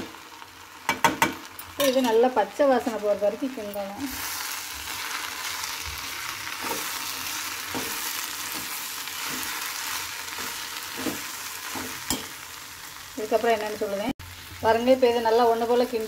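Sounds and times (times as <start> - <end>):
vegetables sizzling in oil: 0.0 - 16.0.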